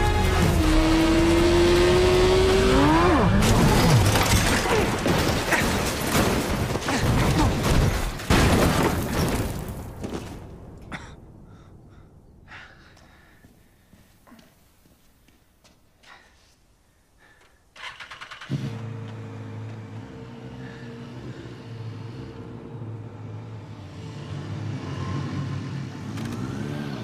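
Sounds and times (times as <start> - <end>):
motorcycle engine revving: 0.0 - 4.1, 17.9 - 27.0
crash scraping and tumbling: 3.4 - 10.6
scattered debris sounds: 3.4 - 11.0.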